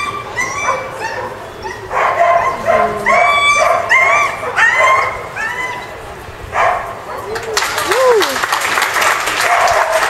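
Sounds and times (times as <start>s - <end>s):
dog yipping barks: 0.0s - 5.9s, 6.5s - 7.4s, 9.5s - 10.0s.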